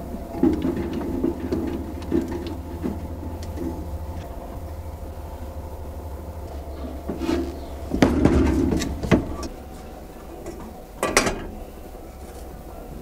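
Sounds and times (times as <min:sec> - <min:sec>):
steady low hum: 0:00.0 - 0:13.0
metal clamps clanking: 0:10.4 - 0:11.6.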